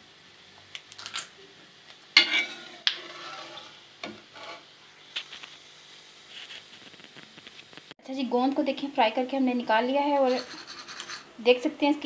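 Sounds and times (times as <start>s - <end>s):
light sizzling: 0.0s - 12.0s
spoon scraping and knocking in pan: 2.2s - 5.4s.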